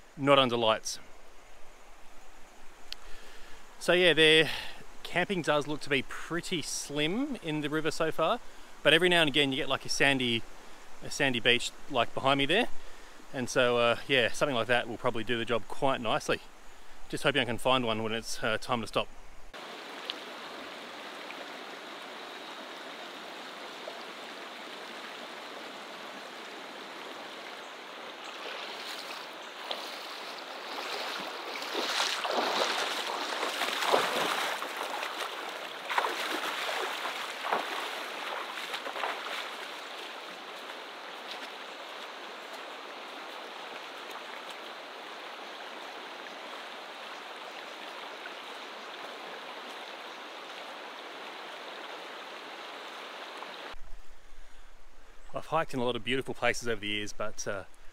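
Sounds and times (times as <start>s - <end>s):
river rushing over stones: 19.6s - 53.8s.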